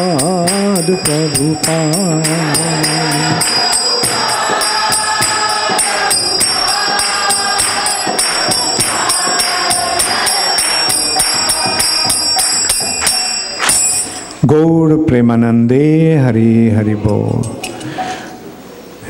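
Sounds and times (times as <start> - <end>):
group of voices singing: 0.0 - 13.3
hand cymbals clashing: 0.0 - 14.4.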